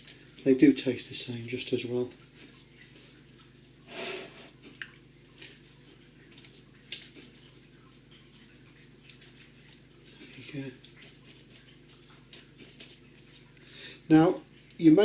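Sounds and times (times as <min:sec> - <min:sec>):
low steady hum: 0:00.0 - 0:15.0
short hiss: 0:03.9 - 0:04.5.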